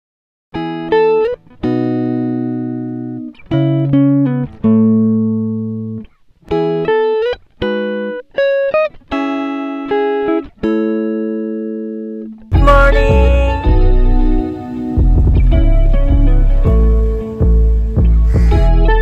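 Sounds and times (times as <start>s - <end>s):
guitar chords: 0.5s - 19.0s.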